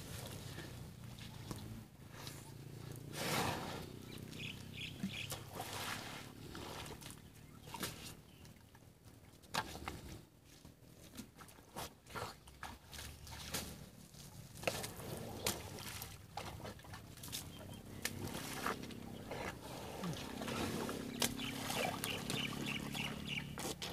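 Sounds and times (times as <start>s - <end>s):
elephant trunks splashing in mud: 14.5s - 19.0s, 20.0s - 23.9s.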